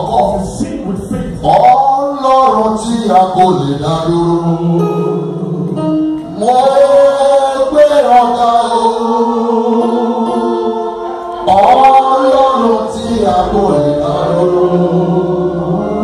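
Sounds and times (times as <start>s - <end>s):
voices singing a slow hymn: 6.4s - 16.0s.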